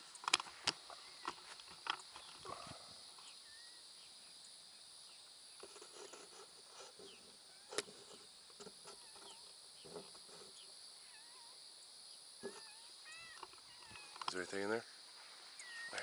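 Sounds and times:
high insect drone: 0.0 - 16.0
bird chirps: 2.0 - 6.2, 8.9 - 16.0.

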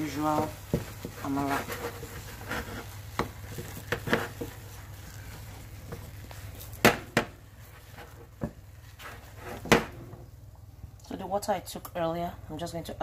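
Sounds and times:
spatula scraping a metal saucepan: 0.0 - 6.5, 7.6 - 10.0.

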